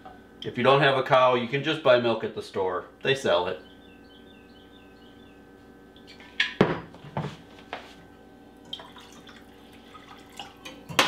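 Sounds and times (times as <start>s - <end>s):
milk pouring into metal cup: 8.6s - 10.9s.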